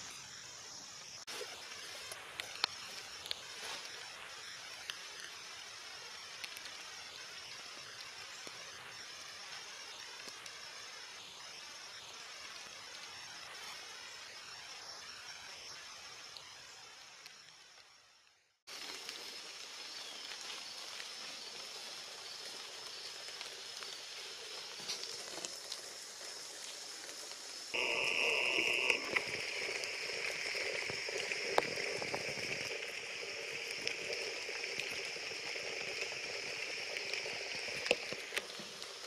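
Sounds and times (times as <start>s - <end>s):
rain falling on leaves: 1.3s - 13.7s, 18.7s - 39.0s
sharp drips: 26.8s - 39.0s.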